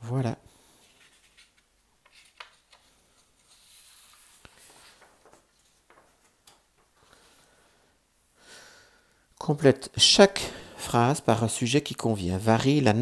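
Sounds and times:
paper rustling: 0.8 - 7.2.

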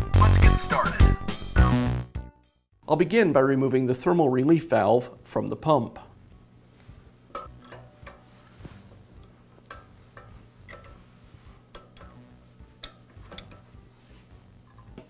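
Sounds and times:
ratchet wrench clicking: 9.2 - 11.1, 11.7 - 13.6.

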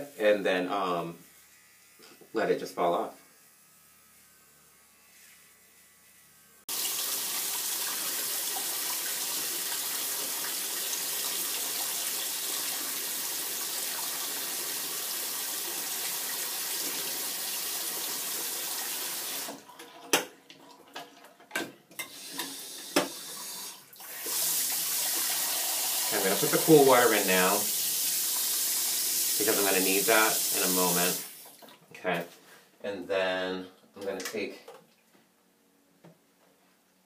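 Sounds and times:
tap water running into sink: 6.7 - 12.6, 22.2 - 29.4.

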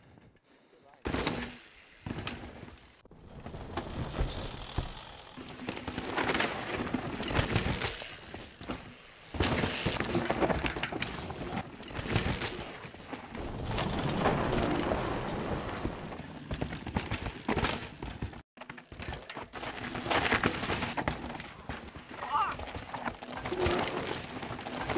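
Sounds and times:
bike rattling and clicking: 0.0 - 24.9
bike tyres skidding over dirt: 1.1 - 24.9.

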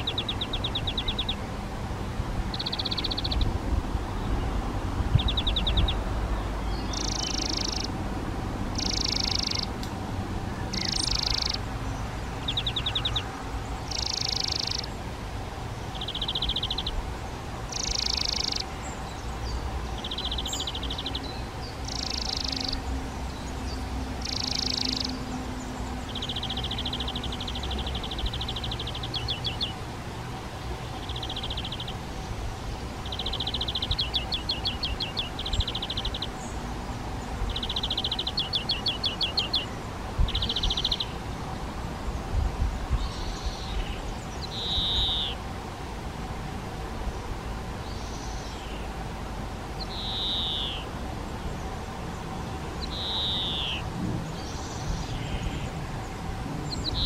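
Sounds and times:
birds calling: 0.0 - 1.5, 2.5 - 3.6, 4.2 - 8.0, 8.6 - 15.1, 15.7 - 17.0, 17.6 - 45.5, 49.7 - 57.0
rapid ticking bird notes: 2.5 - 3.5, 6.7 - 10.0, 10.6 - 15.0, 15.8 - 17.0, 17.7 - 29.8, 33.0 - 36.6, 37.2 - 41.2, 49.8 - 50.9, 52.8 - 55.8.

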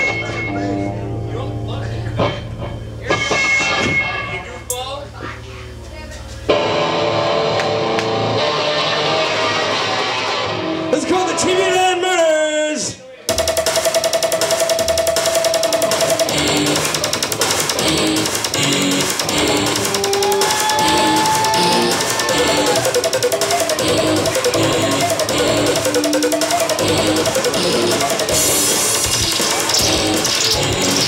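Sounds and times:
bass guitar: 0.0 - 11.0, 14.8 - 31.0
drums: 2.0 - 31.0
electric guitar: 6.5 - 10.9
electric guitars: 6.5 - 11.0, 15.1 - 31.0.

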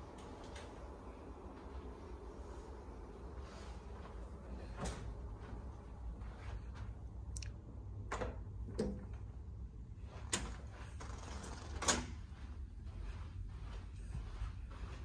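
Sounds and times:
low steady hum: 0.0 - 15.0
closet doors clicking and knocking: 8.0 - 9.2, 10.3 - 12.2.

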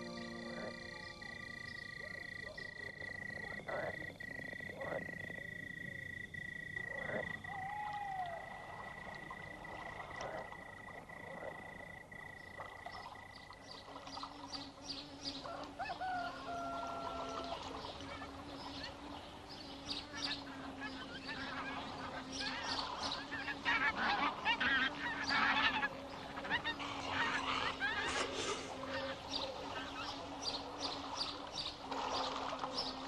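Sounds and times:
steady high tone: 0.0 - 2.6
frogs croaking: 0.0 - 33.0.

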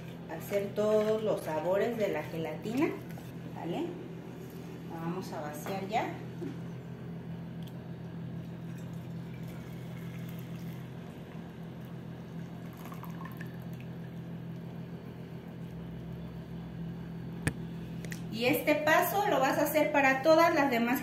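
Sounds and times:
low steady hum: 0.0 - 21.0
liquid pouring into a mould: 8.6 - 14.1.

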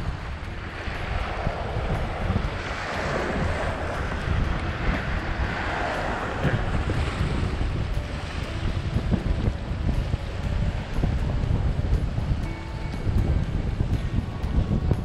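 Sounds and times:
water splashing against wharf: 0.0 - 15.0
wind rumbling on microphone: 0.0 - 15.0.

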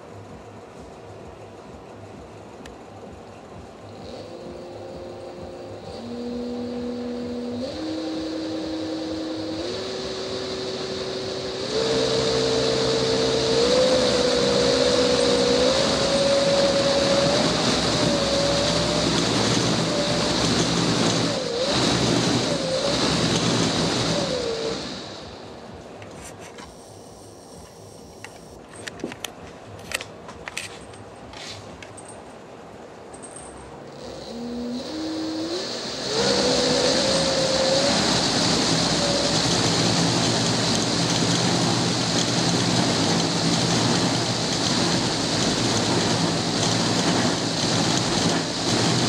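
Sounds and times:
electric motor whine: 3.1 - 28.6, 33.9 - 49.0
rush of spinning blades: 3.9 - 25.8, 34.0 - 49.0.

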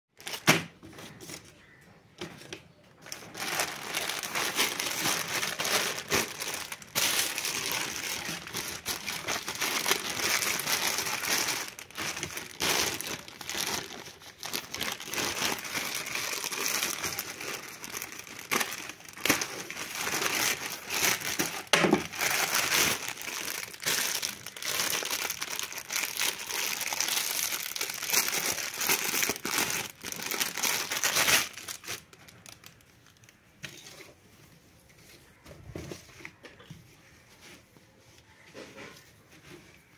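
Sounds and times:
plastic wrapper crinkling: 0.2 - 0.6, 3.0 - 33.9
plastic mailer bag crinkling: 3.0 - 33.4.

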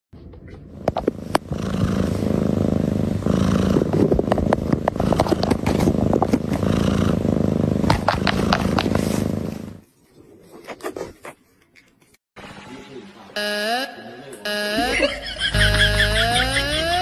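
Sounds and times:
cat purring: 0.4 - 9.8
crackles and scratches on cardboard: 3.6 - 12.2.

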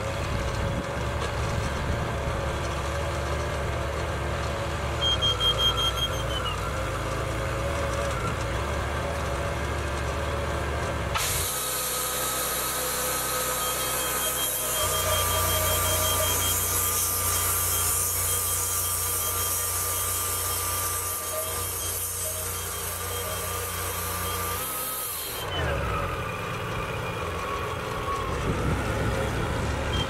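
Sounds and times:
bandsaw mill engine running: 0.0 - 30.0
high hiss of band blade: 11.2 - 12.9.

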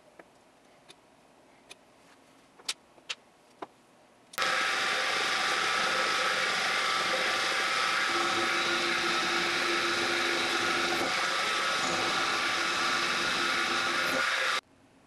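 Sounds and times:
milling machine cutting metal: 4.4 - 14.6.

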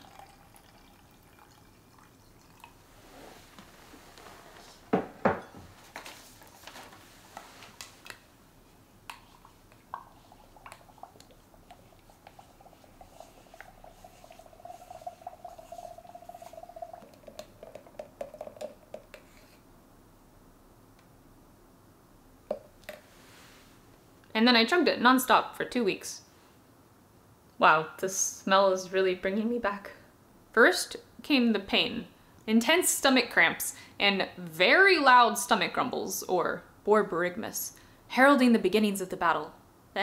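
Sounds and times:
water pouring into glass jar: 0.0 - 2.8, 10.0 - 19.2
faint steady tone: 9.2 - 20.4.

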